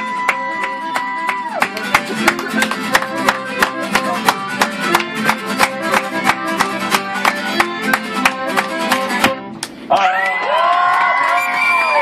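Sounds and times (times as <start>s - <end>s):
accordion: 0.0s - 9.6s
fiddle: 0.0s - 9.6s
strummed acoustic guitar: 0.0s - 9.6s.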